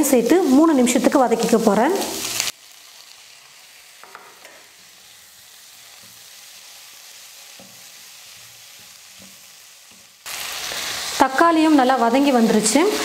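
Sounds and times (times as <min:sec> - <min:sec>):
onions sizzling in oil: 0:00.0 - 0:13.0
spatula knocking a pan: 0:04.0 - 0:04.6, 0:07.6 - 0:10.1.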